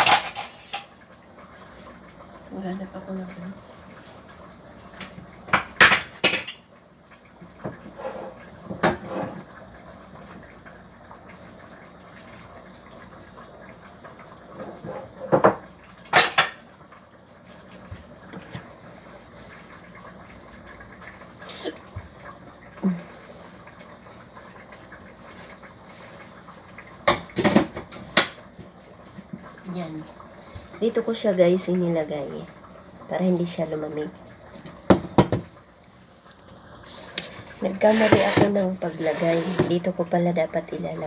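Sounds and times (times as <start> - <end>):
pots and pans clattering: 0.0 - 1.0, 5.0 - 6.7, 7.6 - 9.5, 14.5 - 16.7, 27.0 - 29.5, 34.6 - 35.6, 37.2 - 39.8.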